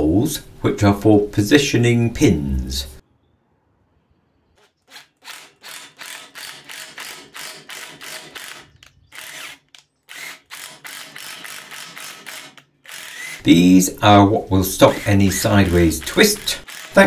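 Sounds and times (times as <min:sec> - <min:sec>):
cordless driver clicking: 0:05.2 - 0:13.4, 0:14.9 - 0:17.0.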